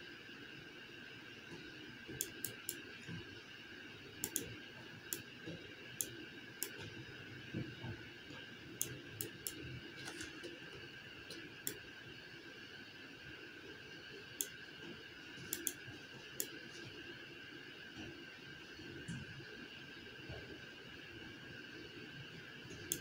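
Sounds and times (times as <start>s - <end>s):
faint steady hum: 0.0s - 23.0s
computer mouse clicking: 2.2s - 2.8s, 4.2s - 4.5s, 5.1s - 5.3s, 6.0s - 6.8s, 8.8s - 10.4s, 11.3s - 11.8s, 14.4s - 14.6s, 15.4s - 15.8s, 16.4s - 16.6s, 22.8s - 23.0s.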